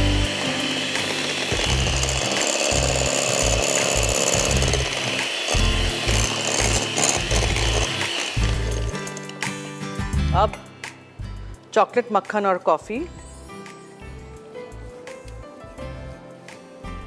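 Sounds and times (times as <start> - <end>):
electric hand mixer whisking: 0.0 - 9.5.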